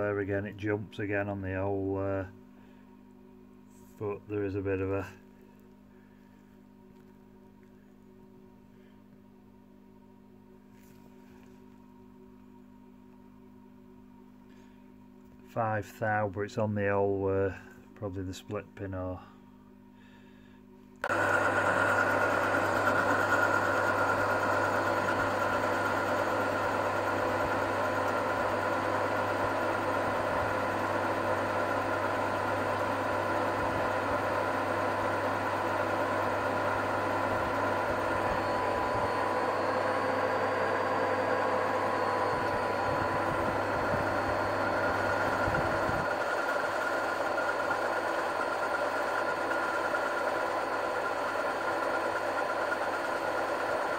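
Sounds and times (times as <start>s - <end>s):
lathe humming and whining: 21.0s - 53.9s.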